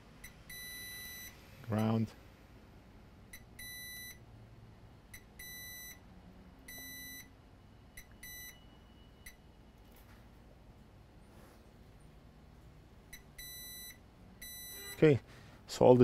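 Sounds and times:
multimeter beeping: 0:00.2 - 0:02.0, 0:03.3 - 0:04.2, 0:05.1 - 0:06.0, 0:06.7 - 0:07.3, 0:07.9 - 0:09.4, 0:13.1 - 0:15.1.

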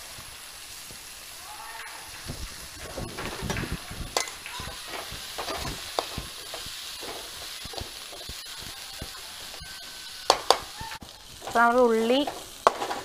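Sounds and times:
onions sizzling in oil: 0:00.0 - 0:13.0
spatula scraping metal pan: 0:03.1 - 0:08.6.

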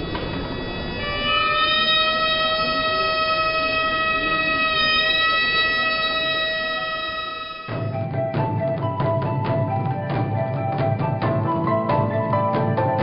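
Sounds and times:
flutes holding high note: 0:00.0 - 0:08.1.

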